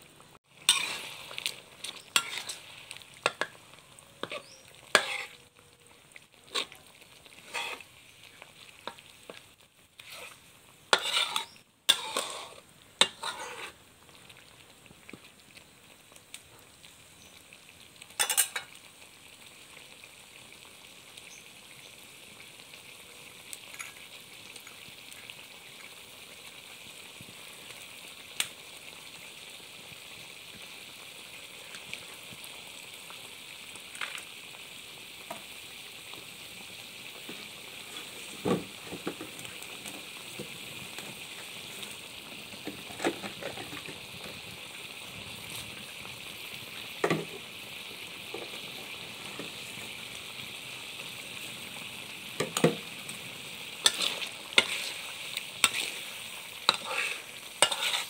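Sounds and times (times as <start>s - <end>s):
curry sizzling and bubbling: 0.0s - 58.0s
spatula scraping metal wok: 0.6s - 3.6s, 4.2s - 5.5s, 6.4s - 7.9s, 10.0s - 13.8s, 53.8s - 58.0s.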